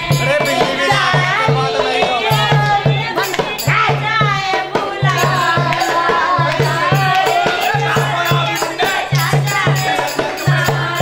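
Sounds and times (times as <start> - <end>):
hand drum beating: 0.0 - 11.0
women singing folk song: 0.0 - 11.0
hand claps: 2.6 - 3.6, 5.6 - 10.4.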